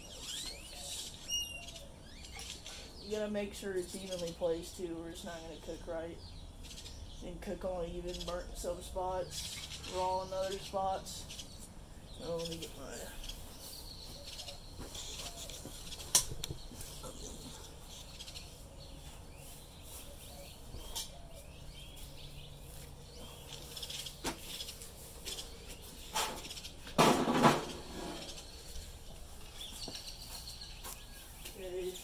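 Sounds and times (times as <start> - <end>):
faint bird chirps: 0.0 - 3.2, 9.2 - 26.9.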